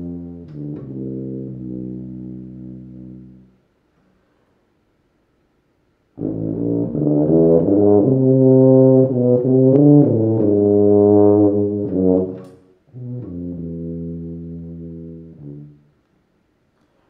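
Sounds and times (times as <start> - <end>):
tuba playing: 0.0 - 3.6, 6.2 - 16.0.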